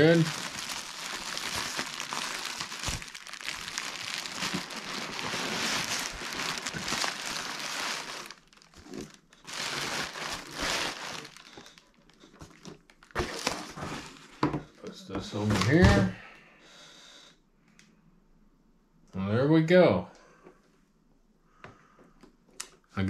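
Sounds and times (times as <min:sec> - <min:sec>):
bubble wrap crinkling: 0:00.0 - 0:14.4.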